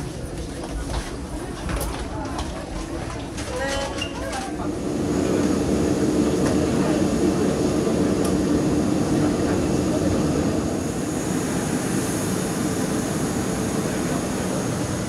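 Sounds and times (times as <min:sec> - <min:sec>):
parked airliner drone: 0:04.6 - 0:15.0.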